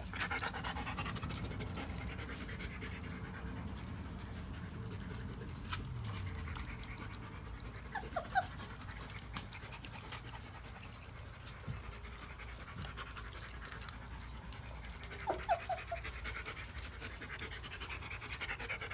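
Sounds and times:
paws scuffling on concrete: 0.0s - 18.9s
puppies panting: 0.0s - 18.9s
puppies squeaking: 7.9s - 8.9s, 15.1s - 16.1s.

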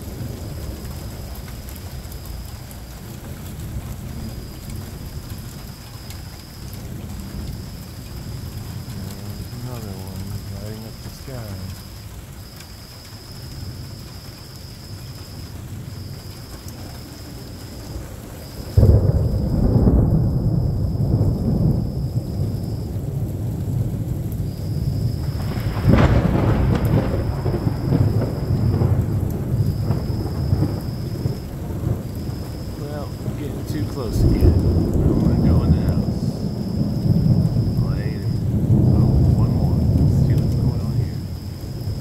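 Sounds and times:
rain falling: 0.0s - 42.0s
thunderclap rolling into rumble: 0.0s - 42.0s.

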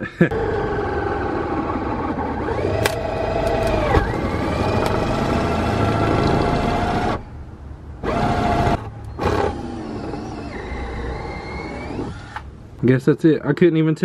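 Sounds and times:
electric drill boring through metal: 8.0s - 12.4s.

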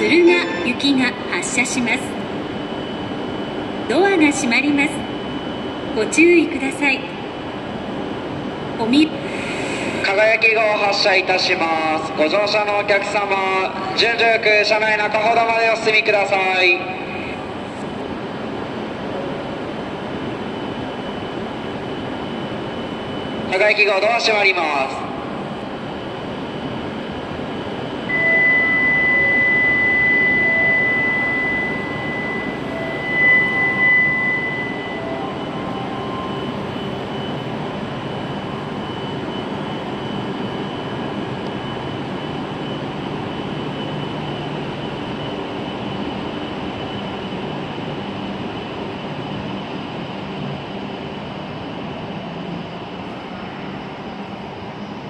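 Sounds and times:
train rumbling and hissing: 0.0s - 55.0s
electronic warning tone: 26.0s - 47.6s.

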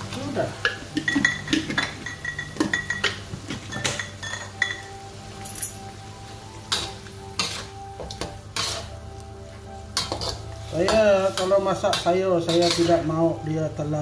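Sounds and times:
metal spatula scraping a wok: 6.7s - 9.0s, 10.0s - 13.1s.

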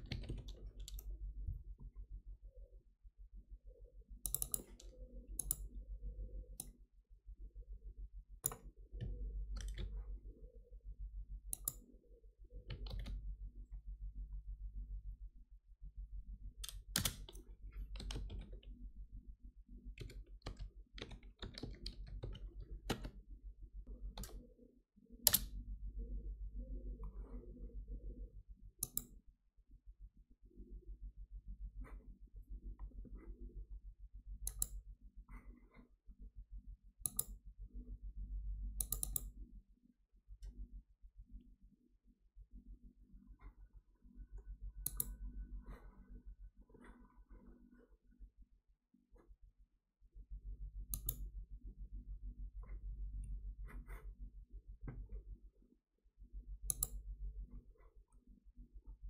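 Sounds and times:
keyboard typing: 0.0s - 1.2s, 4.2s - 5.8s, 8.4s - 10.0s, 12.6s - 13.2s, 16.6s - 18.8s, 19.9s - 23.2s, 38.8s - 39.4s
low steady hum: 0.0s - 59.0s.

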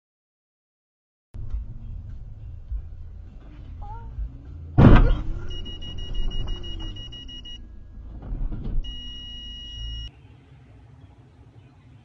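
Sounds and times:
engine and cabin rumble: 1.4s - 10.1s
high electronic warning tone: 5.5s - 7.6s, 8.8s - 10.1s.

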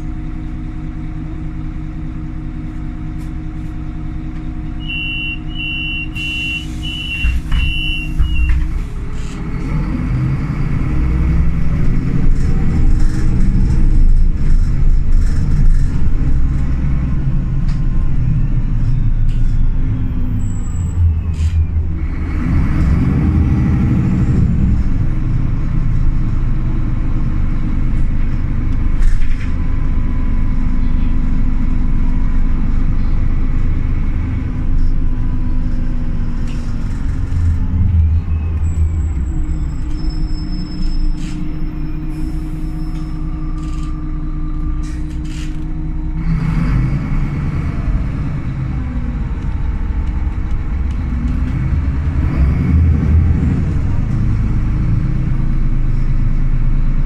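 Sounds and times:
bus engine: 0.0s - 57.0s
high beeps: 4.8s - 8.5s.

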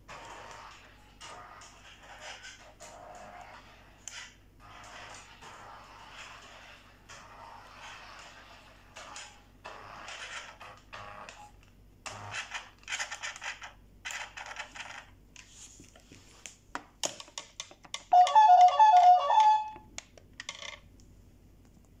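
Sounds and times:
electronic beeping tune: 18.2s - 19.8s.

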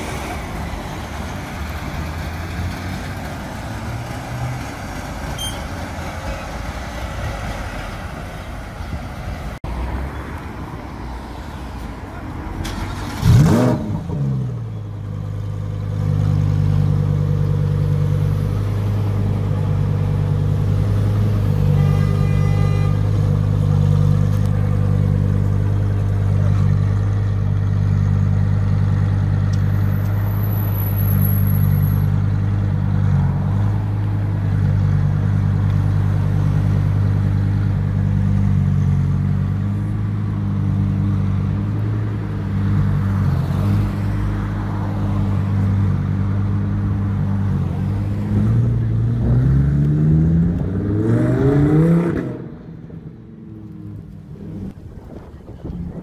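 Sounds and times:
car engine revving and idling: 12.6s - 21.7s.

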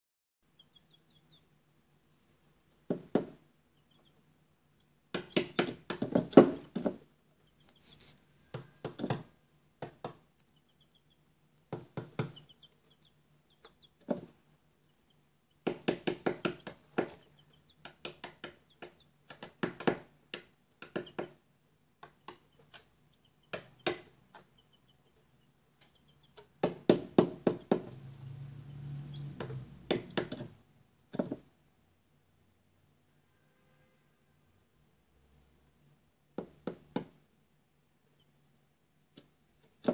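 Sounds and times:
chicks cheeping: 0.4s - 1.6s, 3.7s - 6.8s, 7.4s - 9.3s, 10.4s - 19.6s, 20.8s - 21.4s, 22.0s - 30.4s, 38.1s - 38.4s
chicks tapping and knocking: 2.6s - 4.2s, 4.8s - 7.8s, 8.4s - 31.6s, 36.3s - 37.3s, 39.1s - 39.9s.

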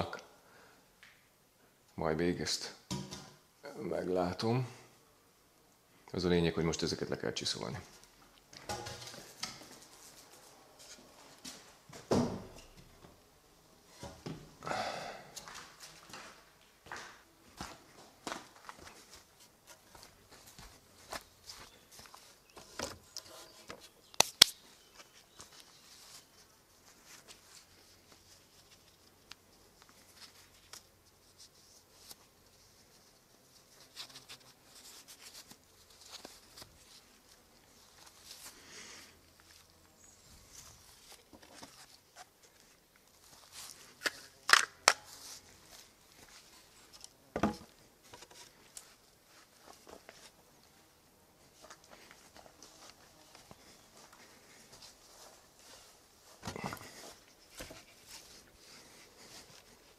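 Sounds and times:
shuffling: 7.5s - 13.2s, 15.3s - 44.4s, 45.1s - 47.1s, 47.7s - 59.9s
sharp knocks of wood: 47.4s - 47.7s
wooden beam thud: 47.4s - 47.8s.

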